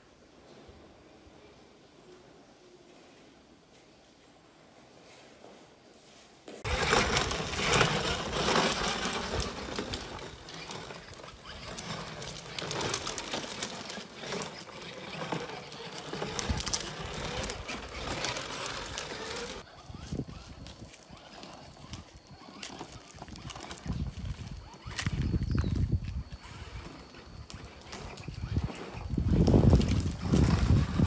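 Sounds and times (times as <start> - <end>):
plastic wheels rattling on concrete: 6.6 - 31.0.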